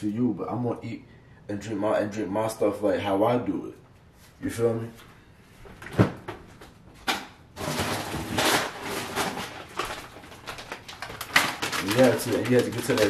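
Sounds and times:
plastic bag rustling: 7.6s - 13.0s.

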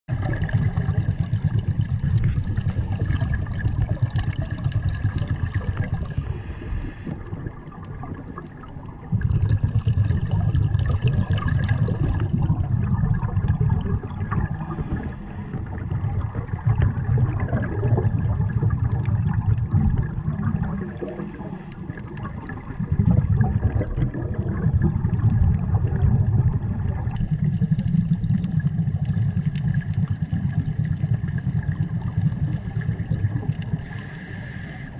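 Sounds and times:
gurgling exhaled bubbles underwater: 0.1s - 34.9s
regulator inhale hiss: 6.0s - 7.2s, 14.6s - 15.7s, 21.0s - 22.0s, 33.7s - 34.9s.

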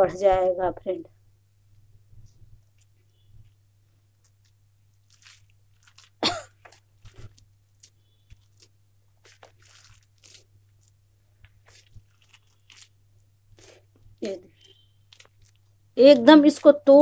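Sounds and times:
hand squelching food: 2.7s - 17.0s
person coughing: 6.2s - 6.8s.

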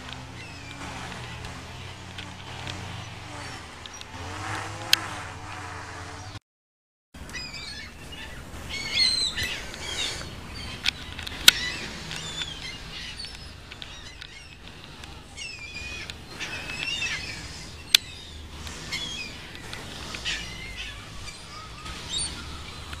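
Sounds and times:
seagulls calling: 0.0s - 6.4s, 7.2s - 23.0s
sharp clicks: 9.4s - 20.7s.

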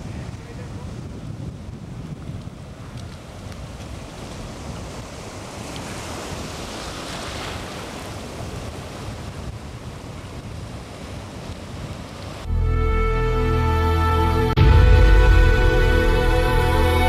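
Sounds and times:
wind on microphone: 0.0s - 12.5s
ocean surf washing: 0.0s - 17.0s.

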